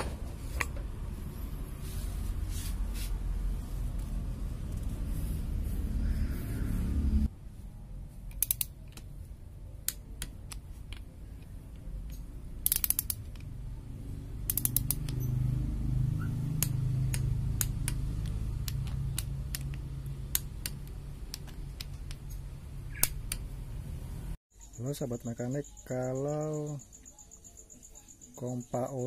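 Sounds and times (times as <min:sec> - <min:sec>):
torque wrench ratchet clicking: 0:08.3 - 0:08.8, 0:12.1 - 0:13.3, 0:14.4 - 0:15.3.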